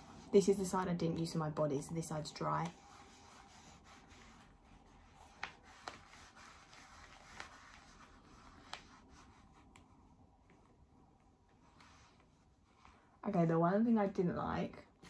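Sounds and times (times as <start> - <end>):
faint rustling of mitt: 2.4 - 13.2.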